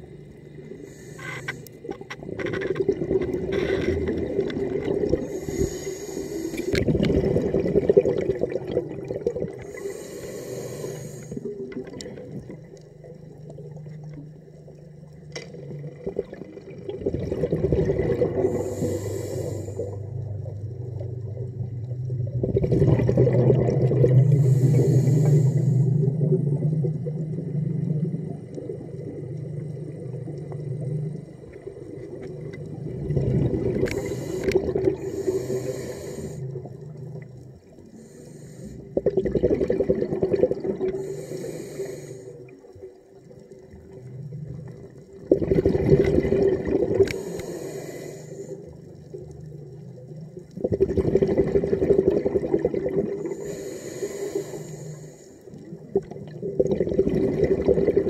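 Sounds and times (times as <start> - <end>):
diver inhaling through regulator: 0.6 - 1.8, 5.1 - 7.0, 9.3 - 11.6, 17.8 - 20.3, 23.3 - 26.5, 33.6 - 36.9, 37.8 - 39.3, 40.8 - 42.6, 47.0 - 49.0, 53.0 - 55.6
diver exhaling bubbles: 0.7 - 14.2, 15.5 - 37.8, 38.6 - 42.8, 43.7 - 49.5, 50.2 - 58.0.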